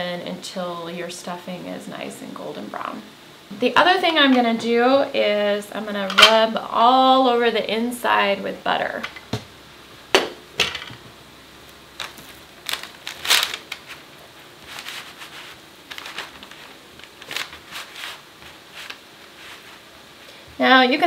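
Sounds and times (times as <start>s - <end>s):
hands rubbing butter squishing: 11.9s - 20.0s.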